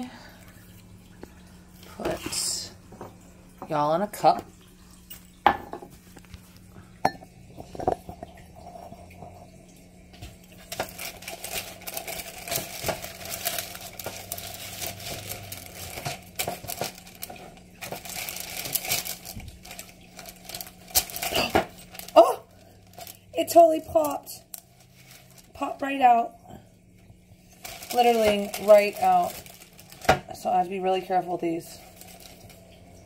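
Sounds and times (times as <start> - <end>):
paper rustling and crinkling: 10.6 - 25.7, 27.6 - 32.7.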